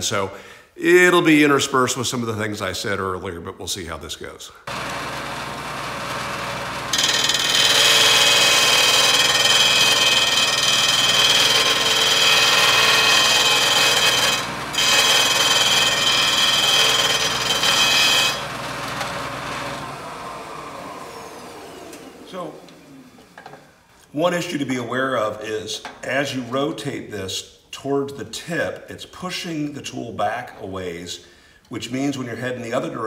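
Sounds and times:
machine motor hum: 4.7s - 23.4s
metal tool grinding on sanding disc: 6.9s - 18.5s.

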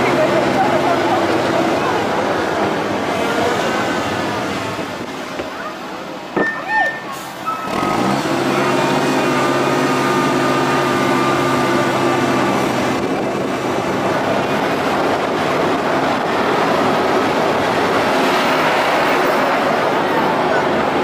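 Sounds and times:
train rumbling: 0.0s - 21.0s.

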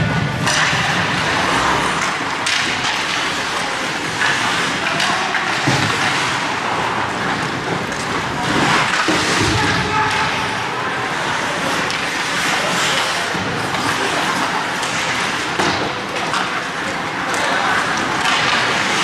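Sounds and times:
skates scraping on ice: 0.0s - 19.0s.

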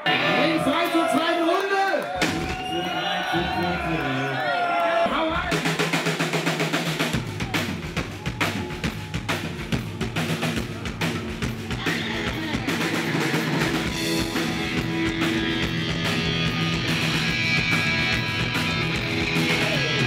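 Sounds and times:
drum kit beating: 2.1s - 2.9s, 5.3s - 20.0s
live rock band: 5.5s - 20.0s
electric bass: 10.0s - 20.0s
electric guitar: 11.7s - 20.0s.

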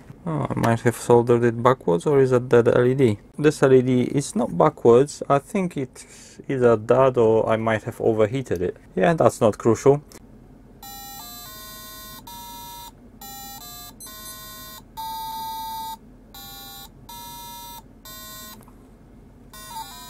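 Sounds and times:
beeping electronic tones: 10.8s - 18.6s, 19.6s - 20.0s.

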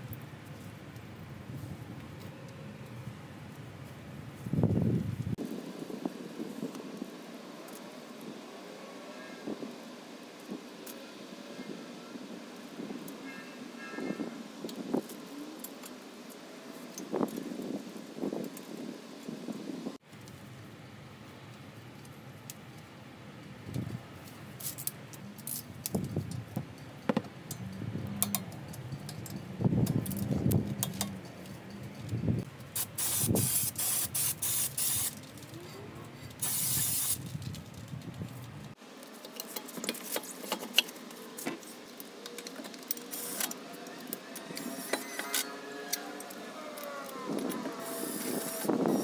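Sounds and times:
aerosol spray hissing: 32.8s - 35.2s, 36.4s - 37.2s.

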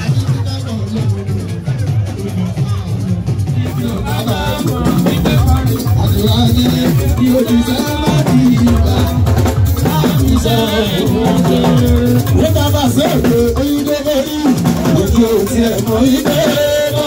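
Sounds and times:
loud percussive music: 0.0s - 17.0s.

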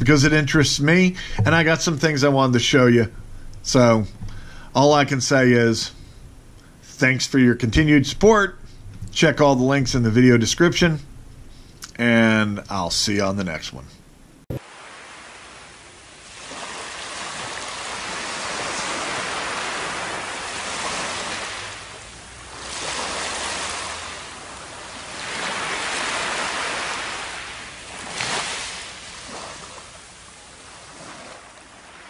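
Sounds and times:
surf washing on sandy beach: 14.6s - 32.0s.

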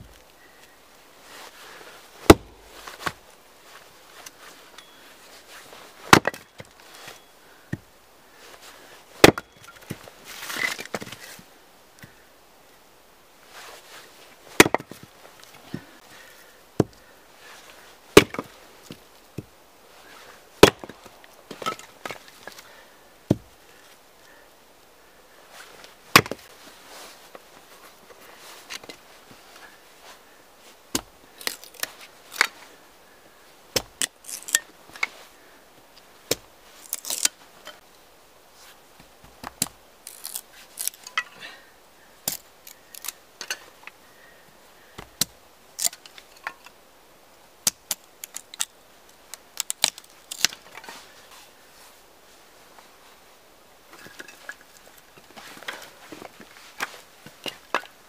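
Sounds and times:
hatchet splitting wood: 2.3s - 3.2s, 6.1s - 6.7s, 9.2s - 10.0s, 14.6s - 15.0s, 18.2s - 19.5s, 20.6s - 22.2s, 26.1s - 26.4s.

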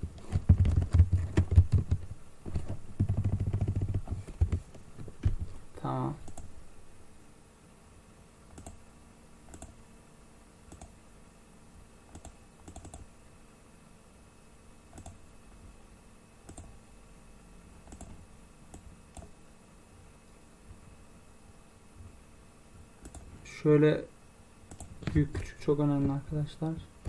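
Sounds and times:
faint steady hum: 0.0s - 27.0s
computer mouse clicks: 6.2s - 6.5s, 8.5s - 8.8s, 9.5s - 9.8s, 10.7s - 11.0s, 12.1s - 13.1s, 14.9s - 15.2s, 16.5s - 16.7s, 17.8s - 19.4s, 23.0s - 23.3s, 24.7s - 25.5s.

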